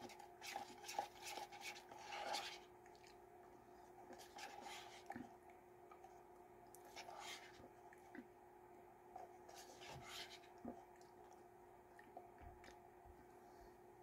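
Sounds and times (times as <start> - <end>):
plastic spoon scraping paper cup: 0.0 - 2.7.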